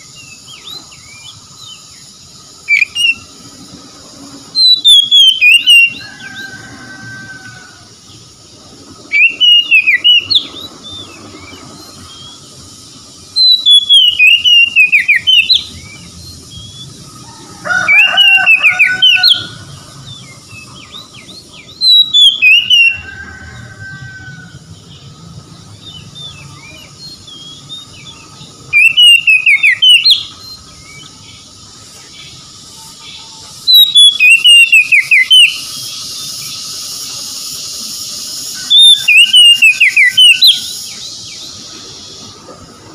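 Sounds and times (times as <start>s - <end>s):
bird singing whistled phrases: 2.6s - 3.3s, 4.6s - 6.5s, 9.1s - 12.4s, 13.4s - 16.9s, 21.6s - 23.0s, 26.2s - 31.1s, 33.1s - 36.4s, 38.1s - 41.1s.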